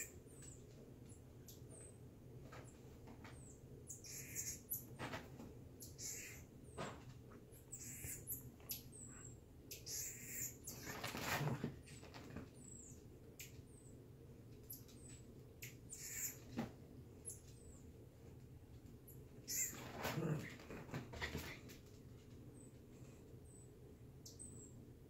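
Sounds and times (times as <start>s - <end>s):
marmoset high-pitched chirps: 3.9s - 4.9s, 5.8s - 6.4s, 7.6s - 9.1s, 9.7s - 11.0s, 15.6s - 16.4s, 19.5s - 19.8s.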